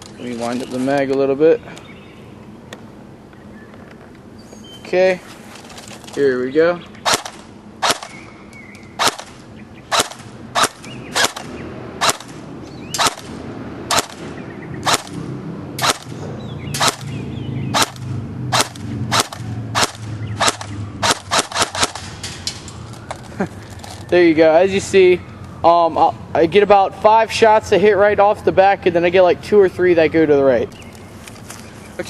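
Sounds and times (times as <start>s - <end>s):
airsoft gun single shots: 7.0s - 8.2s, 9.0s - 12.4s, 13.0s - 13.3s, 13.9s - 15.2s, 15.8s - 16.2s, 16.8s - 22.1s.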